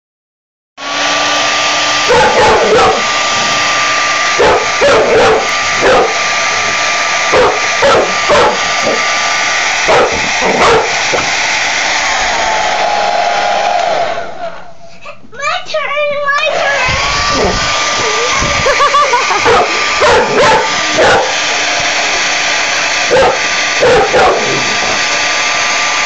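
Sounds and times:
hair dryer blowing with whine: 0:00.8 - 0:14.6, 0:16.4 - 0:26.0
dog barking: 0:02.1 - 0:03.0, 0:04.4 - 0:06.2, 0:07.3 - 0:09.0, 0:09.9 - 0:10.9, 0:19.3 - 0:21.4, 0:23.1 - 0:24.6.

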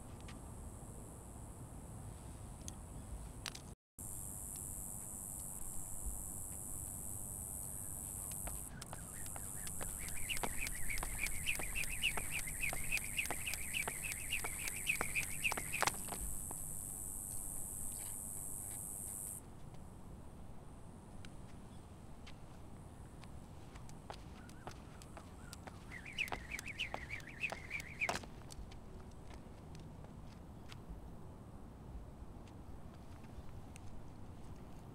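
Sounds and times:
skipping rope whirring: 0:07.4 - 0:17.2, 0:23.7 - 0:29.8
rope ticking on concrete: 0:08.1 - 0:16.7, 0:23.2 - 0:30.8.

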